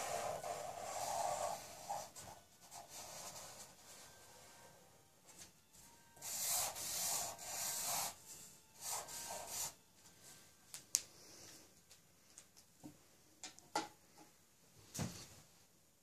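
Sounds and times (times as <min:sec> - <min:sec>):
marker pen drawing on paper: 0:00.0 - 0:04.8, 0:06.2 - 0:09.8.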